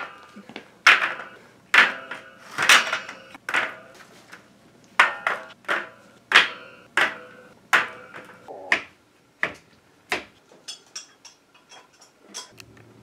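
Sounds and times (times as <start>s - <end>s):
shoe rack parts clacking on tile: 0.0s - 4.1s, 10.4s - 12.6s.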